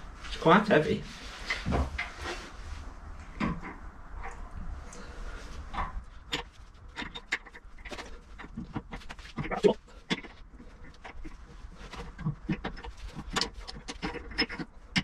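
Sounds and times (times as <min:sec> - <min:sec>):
clothes rustling: 0:00.1 - 0:06.8.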